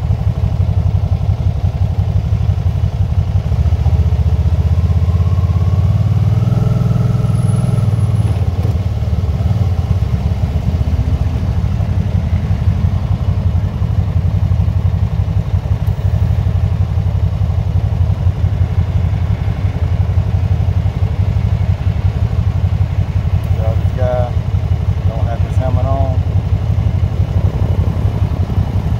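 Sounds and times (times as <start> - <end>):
motorcycle engine idling: 0.0 - 6.4, 7.0 - 28.9.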